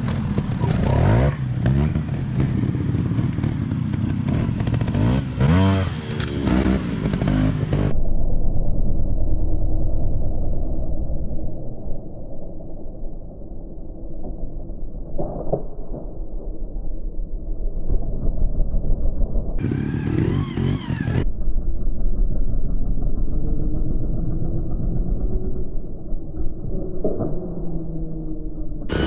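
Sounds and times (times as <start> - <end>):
motorcycle engines revving: 0.0 - 8.0, 19.6 - 29.0
low engine rumble: 0.0 - 16.1, 16.9 - 29.0.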